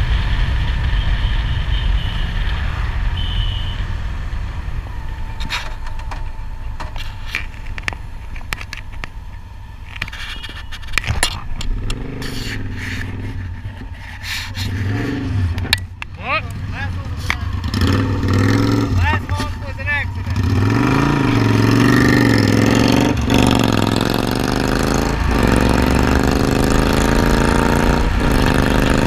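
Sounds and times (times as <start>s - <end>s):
wind noise on microphone: 0.0s - 6.2s
motorcycle engine rumble: 0.0s - 29.0s.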